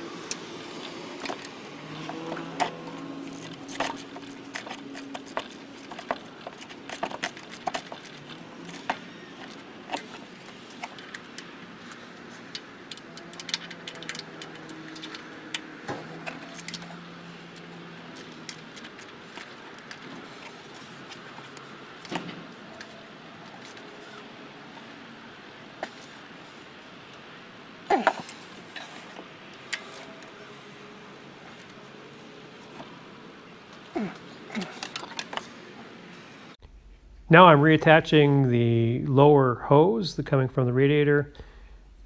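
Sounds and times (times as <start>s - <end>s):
hand tools clicking on metal: 0.2s - 23.9s.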